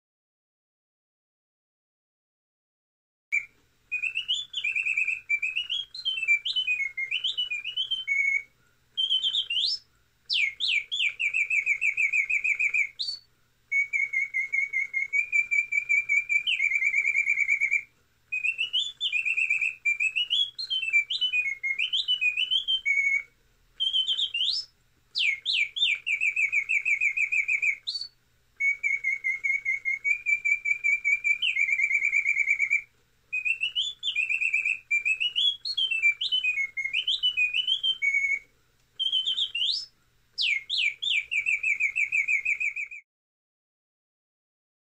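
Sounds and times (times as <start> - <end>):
mechanical bird whistle song: 3.3 - 43.0.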